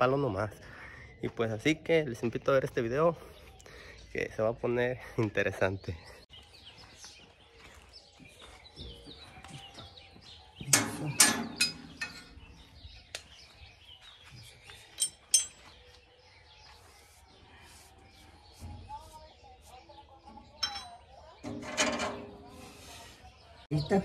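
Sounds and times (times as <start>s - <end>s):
small birds chirping: 0.0s - 24.0s
sharp knocks and clanks: 10.6s - 12.4s
sharp clinks: 14.9s - 15.7s, 20.6s - 21.1s.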